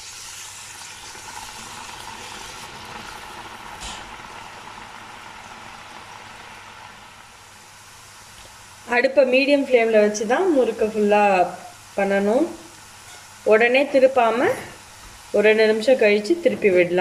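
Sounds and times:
dough sizzling in hot oil: 0:00.0 - 0:16.2.

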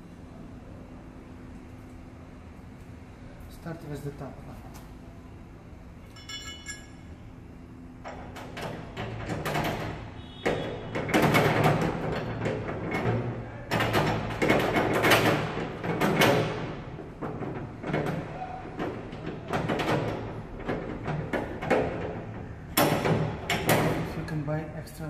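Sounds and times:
metal bracket rattling on van door: 0:08.1 - 0:24.2.

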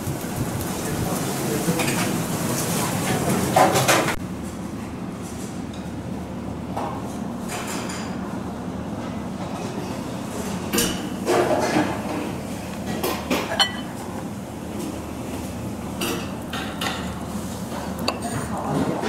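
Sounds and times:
low ventilation hum: 0:00.0 - 0:19.0
dishes and utensils clinking: 0:12.9 - 0:14.0.

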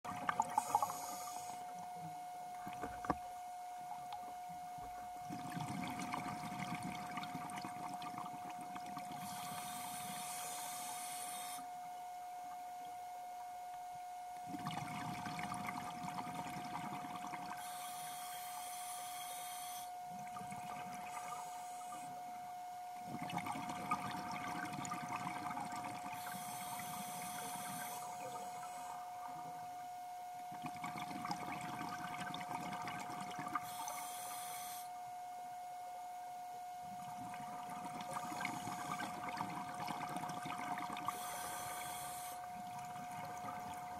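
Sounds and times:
exhaled bubbles underwater: 0:00.0 - 0:03.3, 0:04.8 - 0:10.8, 0:14.5 - 0:18.6, 0:20.1 - 0:22.2, 0:23.0 - 0:34.0, 0:36.9 - 0:43.9
steady thin tone: 0:00.1 - 0:32.4
regulator inhale hiss: 0:00.5 - 0:01.9, 0:09.1 - 0:11.9, 0:17.6 - 0:20.1, 0:21.1 - 0:22.5, 0:26.2 - 0:29.6, 0:33.6 - 0:35.1, 0:38.1 - 0:39.3, 0:41.0 - 0:42.7.

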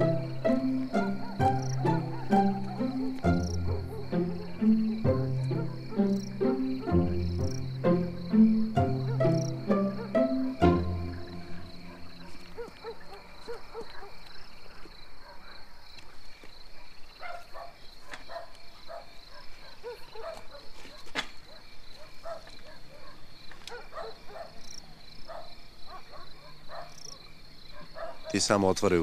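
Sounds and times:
crickets chirping: 0:00.0 - 0:29.0.

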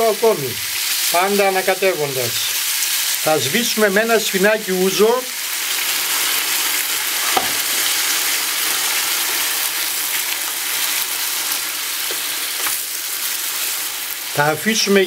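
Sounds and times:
food sizzling in frying pan: 0:00.0 - 0:15.0
knock: 0:07.3 - 0:07.6.

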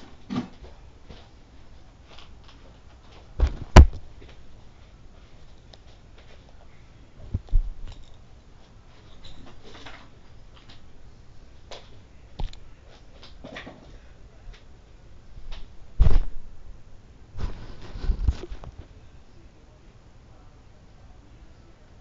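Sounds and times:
heavy thumps: 0:03.4 - 0:04.1, 0:15.5 - 0:16.5
fabric rubbing on microphone: 0:17.4 - 0:18.9.

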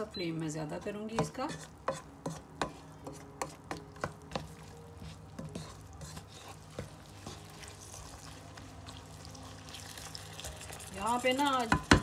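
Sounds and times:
spoon scraping in a wok: 0:00.7 - 0:12.0
wooden spoon knocking a pan: 0:11.6 - 0:12.0.

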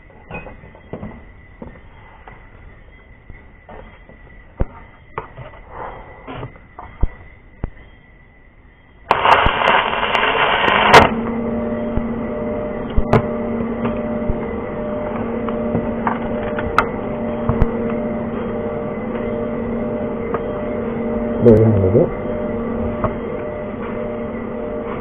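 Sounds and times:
arc welding crackling sizzle: 0:09.0 - 0:11.4
welder buzzing hum: 0:09.0 - 0:25.0.

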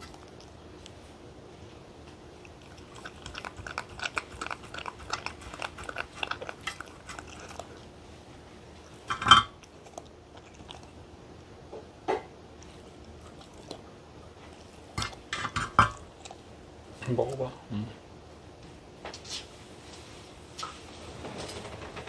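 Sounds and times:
dog licking and chewing: 0:00.0 - 0:11.5, 0:12.5 - 0:17.4.

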